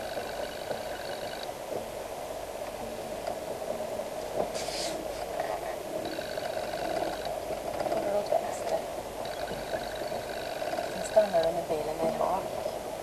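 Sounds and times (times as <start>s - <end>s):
short hiss: 4.5s - 5.2s.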